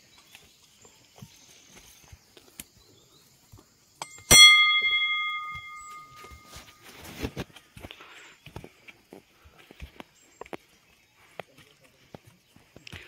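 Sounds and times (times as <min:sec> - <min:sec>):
metal temple bell ringing: 0:04.0 - 0:06.6.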